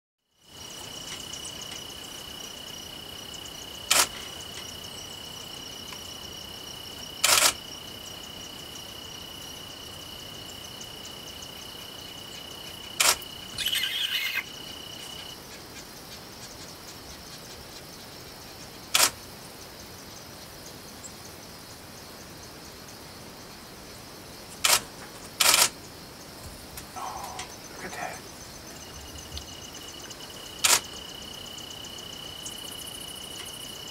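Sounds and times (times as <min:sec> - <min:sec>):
insect chirring: 0:00.3 - 0:33.9
sharp clicks: 0:03.9 - 0:04.2, 0:07.2 - 0:07.6, 0:13.0 - 0:13.7, 0:19.0 - 0:19.2, 0:24.6 - 0:25.8, 0:30.6 - 0:30.9.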